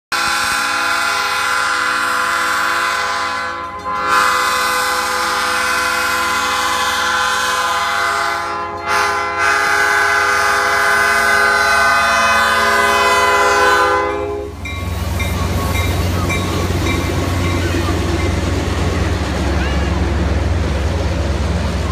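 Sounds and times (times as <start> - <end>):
locomotive horn blasts: 0.1 - 14.7
low rumble of passing locomotive: 0.2 - 21.9.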